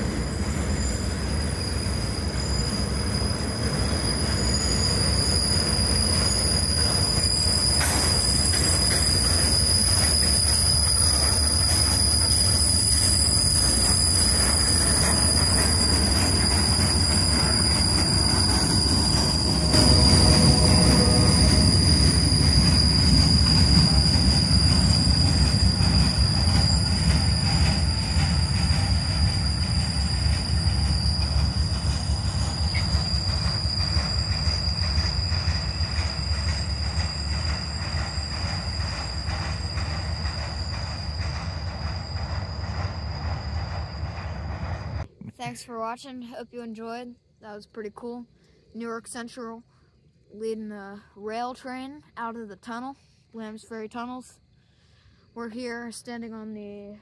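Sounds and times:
train wheels rumbling on track: 0.0 - 45.1
high-pitched wheel squeal: 0.4 - 45.0.

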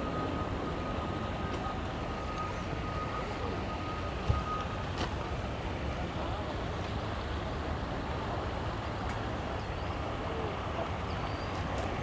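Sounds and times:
engines rumbling: 0.0 - 12.0.

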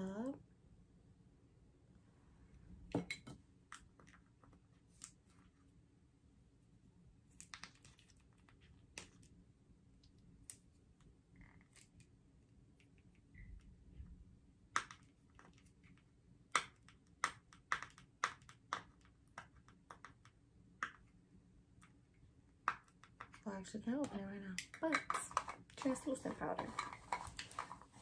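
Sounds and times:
powder container clicks and taps: 14.7 - 21.1, 22.6 - 23.4, 24.0 - 26.0.

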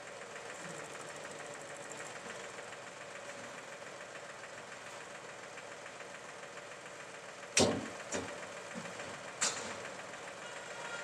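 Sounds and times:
diesel tractor engine idling: 0.0 - 11.0.

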